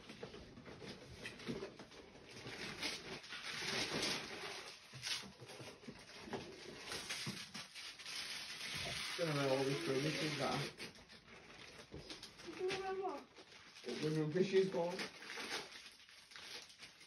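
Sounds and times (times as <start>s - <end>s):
plastic bags and paper rustling: 0.0s - 17.0s.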